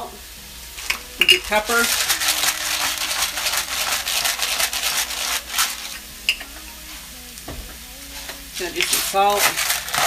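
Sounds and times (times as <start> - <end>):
food sizzling in a skillet: 0.0 - 7.3, 8.0 - 10.0
short scratchy strokes: 1.4 - 6.0.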